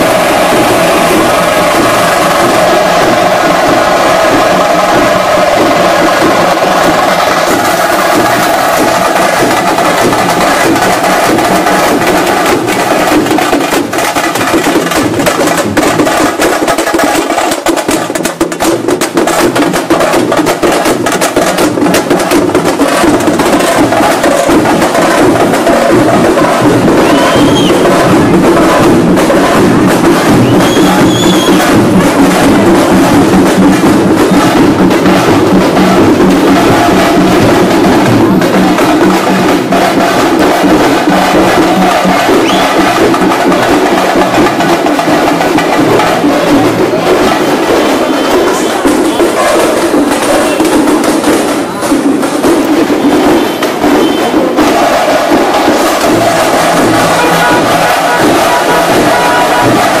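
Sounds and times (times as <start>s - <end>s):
drum band playing loudly: 0.0s - 60.0s.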